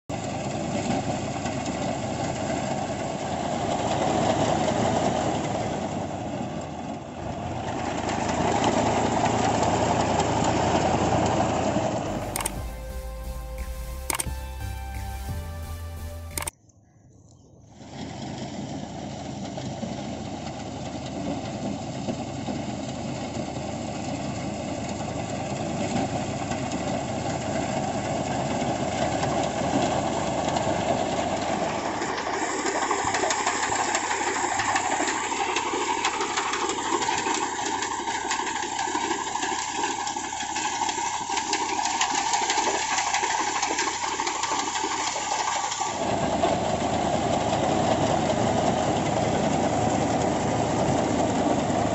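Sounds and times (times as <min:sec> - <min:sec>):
tractor diesel engine running: 0:00.1 - 0:16.5, 0:18.1 - 0:51.9
reaper rushing noise: 0:12.1 - 0:16.5.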